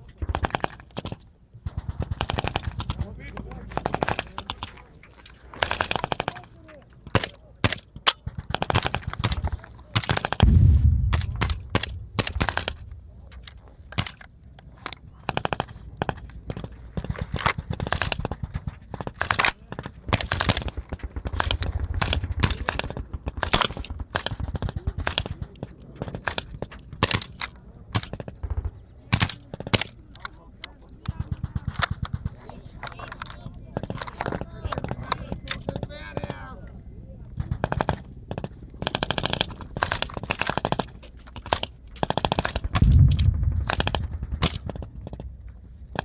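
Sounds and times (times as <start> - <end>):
machine-gun and rifle fire: 0.2 - 3.1, 7.6 - 13.0, 17.0 - 25.5, 37.5 - 45.4
explosion boom: 10.4 - 13.2, 42.8 - 44.4.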